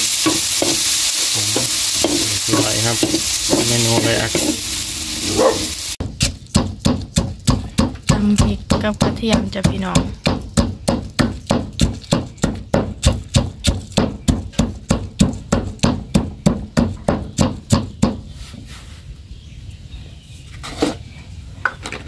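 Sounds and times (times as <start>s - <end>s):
pestle pounding in stone mortar: 0.2s - 0.9s, 1.5s - 4.8s, 6.0s - 18.3s.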